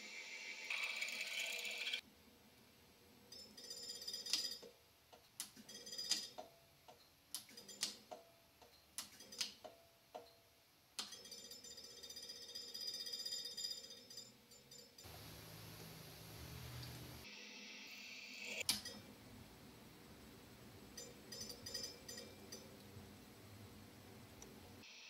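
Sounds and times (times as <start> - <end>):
faint steady hiss: 0.0 - 1.0, 15.0 - 21.3.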